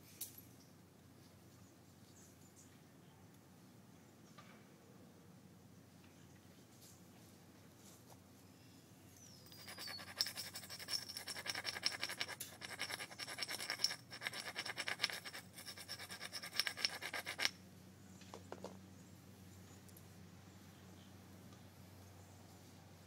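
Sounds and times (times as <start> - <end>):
tool scraping stone edge: 9.5 - 17.6.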